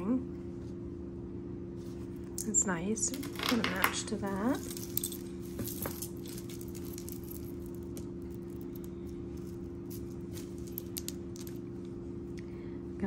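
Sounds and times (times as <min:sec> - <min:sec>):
steady low hum: 0:00.0 - 0:13.0
beads clicking and rustling: 0:03.1 - 0:11.7.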